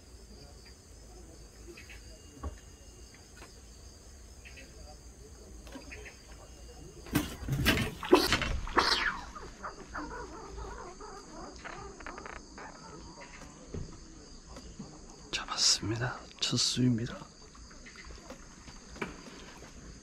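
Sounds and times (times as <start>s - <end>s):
crickets chirping: 0.0s - 20.0s
knocks and rustling: 7.0s - 8.8s.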